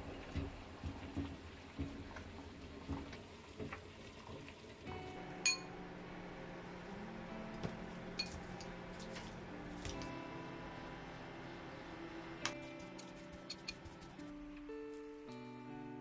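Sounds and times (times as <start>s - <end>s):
steady low hum: 4.9s - 14.6s
metal utensil clinking glass bowl: 5.4s - 5.7s, 8.2s - 8.6s.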